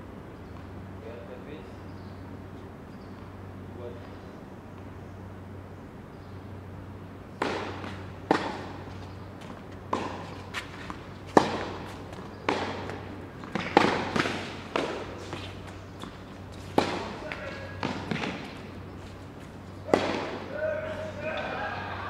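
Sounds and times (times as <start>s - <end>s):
tennis ball bouncing on court: 7.3s - 21.6s
tennis ball struck by rackets: 7.3s - 21.6s.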